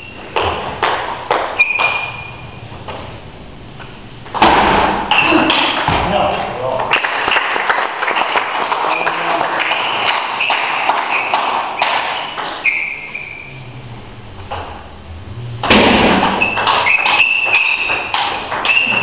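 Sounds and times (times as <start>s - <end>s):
short high squeaks: 1.6s - 2.6s, 8.9s - 13.7s, 16.3s - 19.0s.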